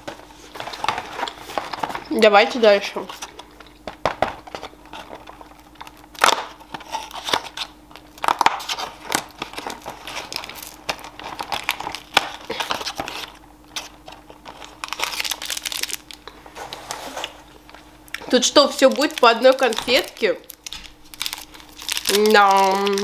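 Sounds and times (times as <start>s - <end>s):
wrapper crinkling: 0.0s - 23.0s
cardboard tearing: 8.3s - 16.1s, 18.8s - 23.0s.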